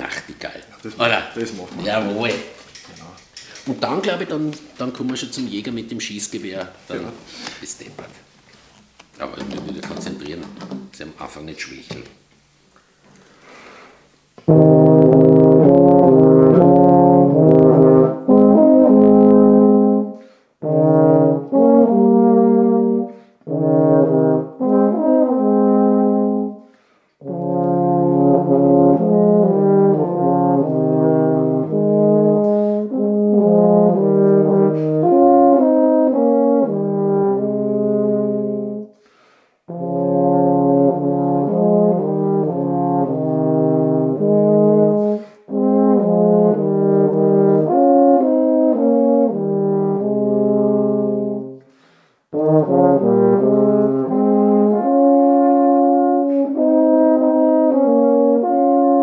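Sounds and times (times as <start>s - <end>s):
tenor horns duet: 14.4s - 39.0s, 39.7s - 51.7s, 52.3s - 59.0s.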